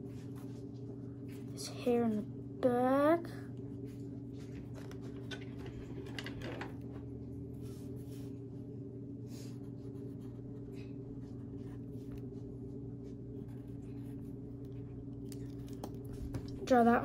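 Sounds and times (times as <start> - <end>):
low hum: 0.0 - 17.0
pencil scratching on paper: 9.5 - 15.0.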